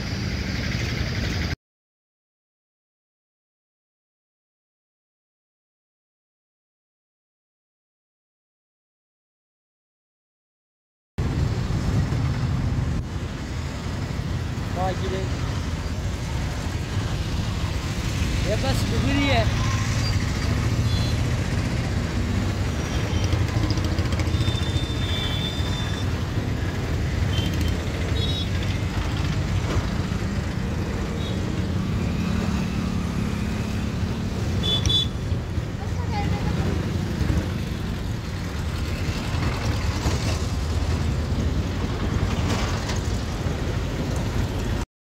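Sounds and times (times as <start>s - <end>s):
heavy diesel vehicles rumbling: 11.2s - 44.8s.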